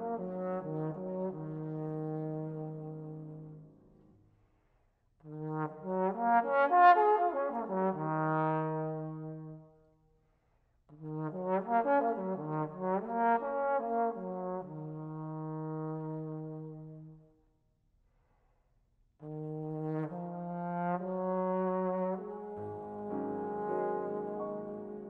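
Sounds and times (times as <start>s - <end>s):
solo trombone playing: 0.0s - 3.8s, 5.3s - 9.5s, 19.2s - 25.0s.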